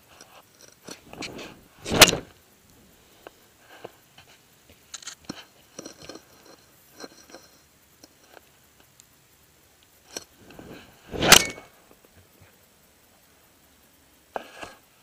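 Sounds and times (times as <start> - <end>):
rush of air on microphone: 1.0 - 2.3, 10.4 - 11.7.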